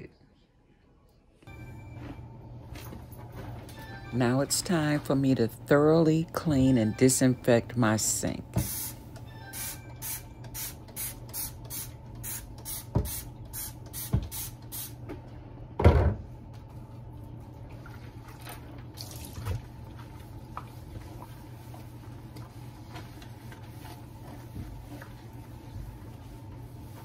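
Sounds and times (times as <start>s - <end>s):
sponge scrubbing sink: 17.6s - 27.0s.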